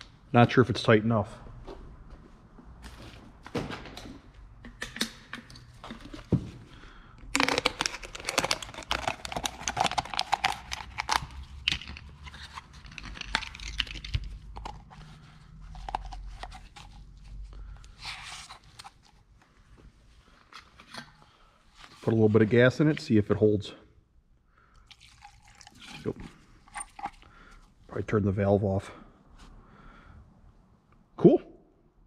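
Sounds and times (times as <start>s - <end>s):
plastic bottle crinkling: 7.3s - 17.7s, 24.8s - 27.5s.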